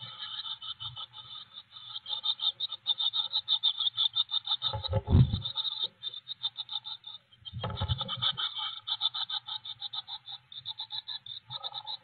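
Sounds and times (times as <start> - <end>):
nestlings begging calls: 9.6 - 12.0.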